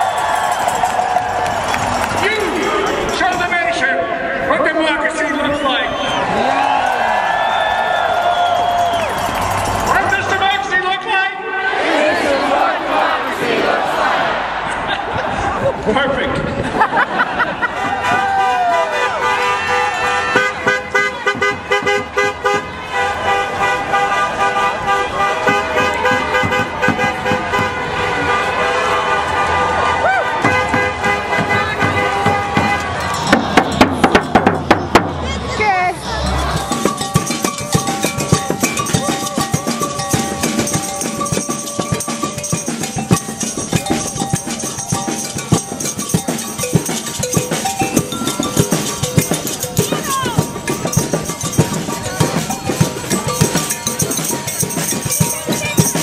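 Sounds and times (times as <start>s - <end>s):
drums and cowbells rhythm: 0.0s - 5.6s, 6.2s - 10.9s, 19.2s - 22.8s, 25.2s - 28.0s, 30.4s - 56.0s
voices shouting: 5.4s - 10.8s, 11.4s - 15.6s, 35.2s - 56.0s
car horns honking: 18.0s - 35.2s.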